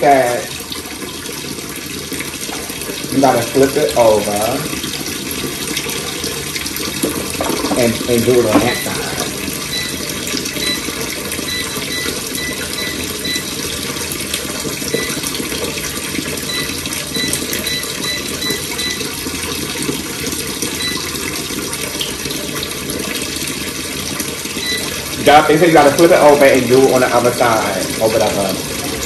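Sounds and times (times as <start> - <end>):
tap water running: 0.0 - 29.0.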